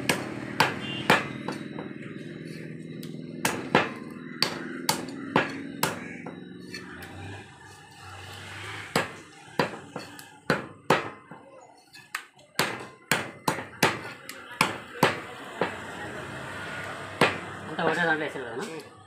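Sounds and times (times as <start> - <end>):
cleaver chopping on wooden block: 0.1 - 1.9, 3.4 - 6.4, 8.9 - 11.3, 12.6 - 15.8, 17.2 - 17.5.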